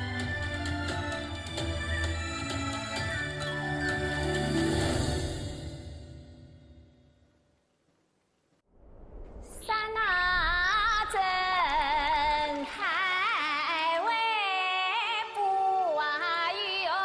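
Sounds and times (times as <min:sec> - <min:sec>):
instrumental backing music: 0:00.0 - 0:05.5
woman singing with vibrato: 0:09.7 - 0:17.0.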